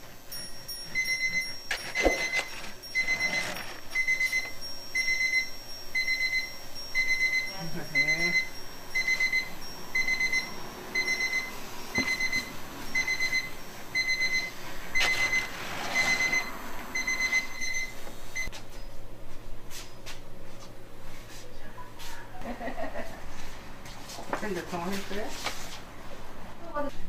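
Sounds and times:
electronic beeper beeping: 1.0 - 18.5.

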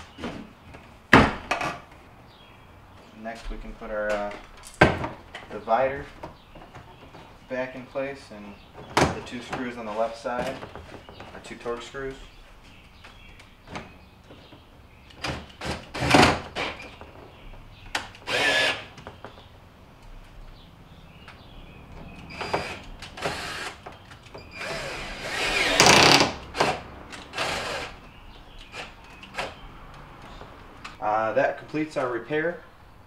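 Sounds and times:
cordless drill driving screws: 18.2 - 18.9, 22.3 - 23.8, 24.5 - 28.0.

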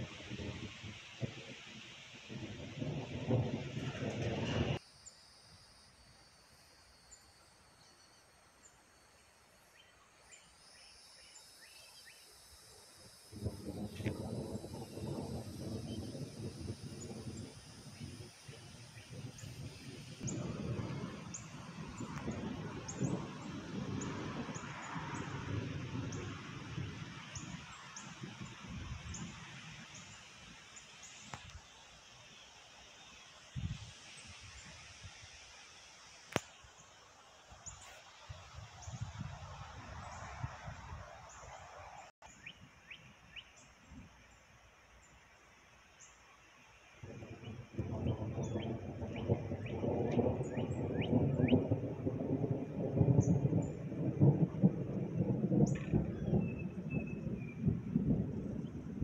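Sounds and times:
wind noise on microphone: 0.0 - 4.8, 13.2 - 31.6, 33.5 - 35.4, 37.6 - 43.1, 47.0 - 59.0
wind gusting through trees: 0.0 - 59.0
high insect drone: 0.2 - 39.6.

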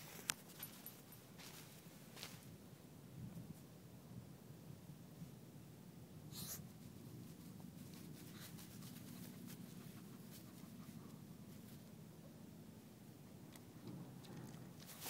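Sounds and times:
dog sniffing: 6.3 - 6.6, 7.8 - 11.8.

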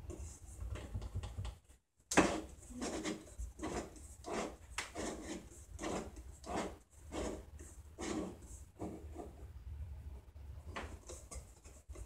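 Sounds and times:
wooden dial rubbing on wood: 2.2 - 9.4.

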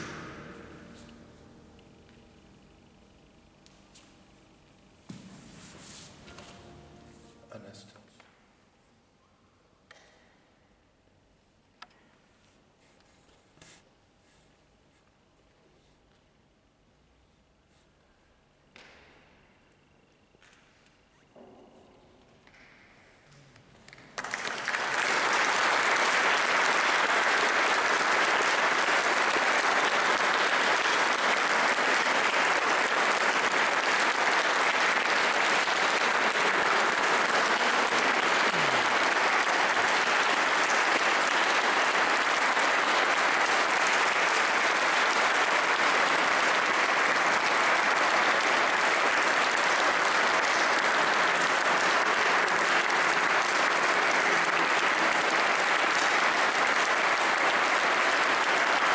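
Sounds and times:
audience applauding: 0.0 - 1.3, 23.9 - 58.9.

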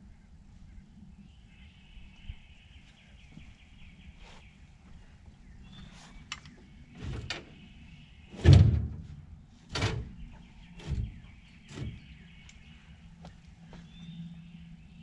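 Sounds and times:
knocks and clunks on metal: 8.4 - 10.2.

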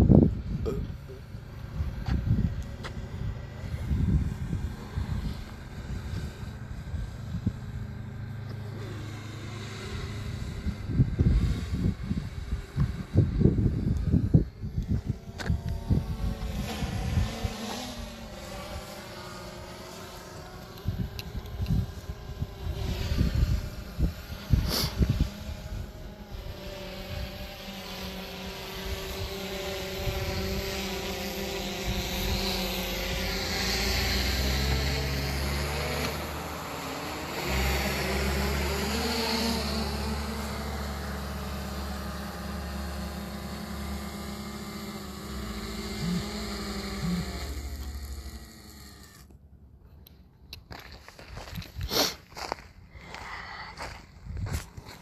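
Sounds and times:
drone propellers humming: 0.0 - 50.3.

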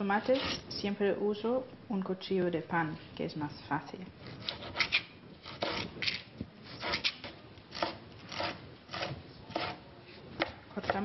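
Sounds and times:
bread knife sawing tomatoes: 4.4 - 6.0, 6.7 - 9.8.

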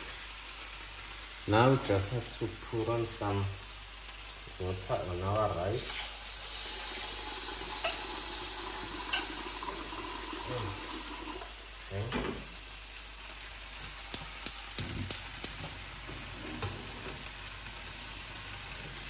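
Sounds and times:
rice sizzling in a pot: 0.0 - 19.0
water running: 6.5 - 12.6
utensil clicking against pot: 14.1 - 15.6.

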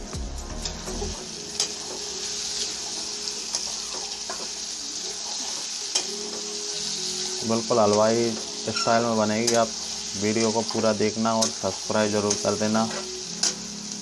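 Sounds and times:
vegetables sizzling in hot oil: 0.0 - 14.0
steel spatula scraping pan: 8.6 - 9.6.

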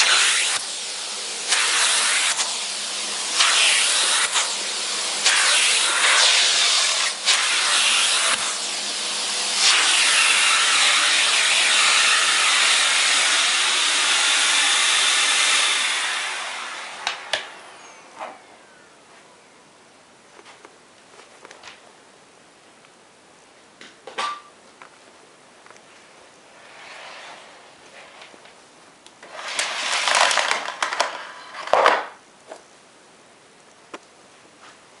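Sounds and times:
vacuum cleaner running: 0.0 - 18.1, 29.2 - 31.6
vacuum cord rewinding clatter: 29.2 - 32.0.

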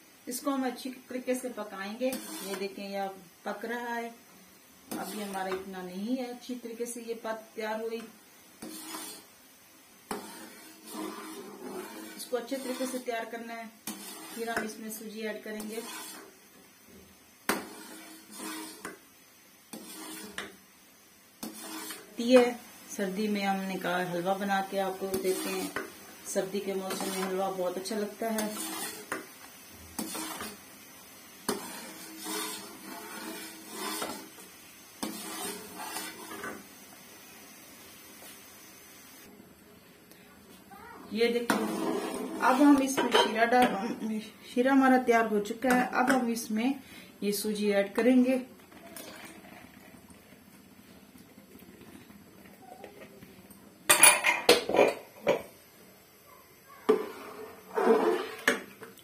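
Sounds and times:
metal spoon scraping a pan: 1.9 - 2.8, 4.9 - 5.6, 8.6 - 9.3, 10.1 - 16.4, 17.5 - 19.0, 19.7 - 20.6, 21.4 - 22.6, 23.7 - 30.6, 31.4 - 36.6, 41.2 - 44.0, 56.9 - 58.7.

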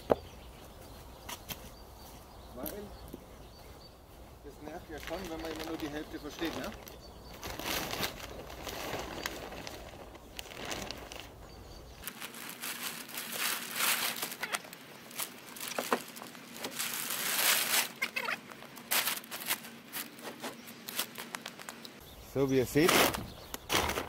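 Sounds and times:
plastic sheeting rustling and crinkling: 4.6 - 21.8.

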